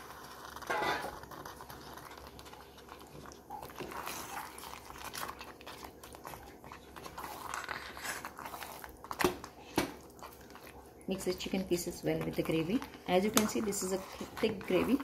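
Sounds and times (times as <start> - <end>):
wet squelching of gravy: 0.0 - 15.0
spoon scraping a pot: 0.6 - 1.2, 12.2 - 15.0.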